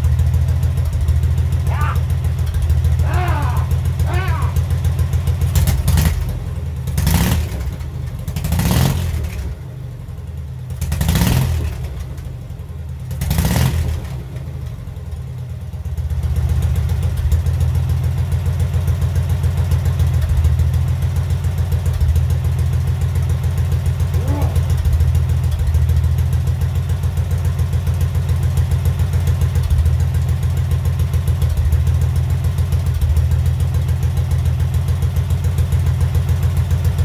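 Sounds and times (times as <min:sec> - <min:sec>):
motorcycle engine revving: 0:00.5 - 0:09.6, 0:10.7 - 0:12.2, 0:13.0 - 0:14.6, 0:21.4 - 0:27.2.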